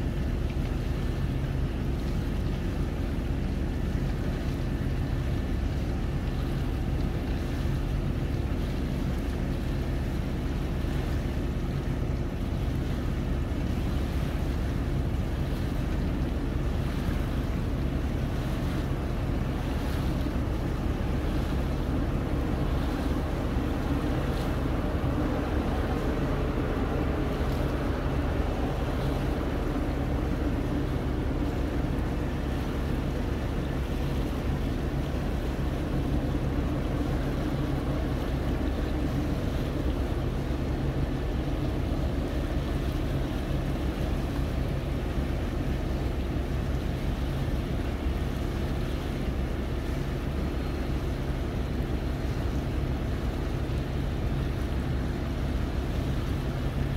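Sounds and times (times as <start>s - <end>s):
low boat engine drone: 0.0s - 56.9s
water noise: 0.0s - 56.9s
wind: 0.0s - 56.9s.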